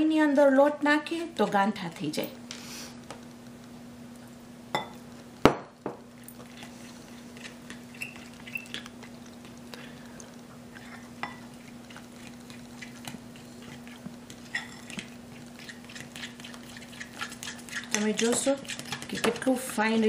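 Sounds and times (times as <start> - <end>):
fork scraping glass bowl: 6.3 - 8.9, 10.8 - 19.7.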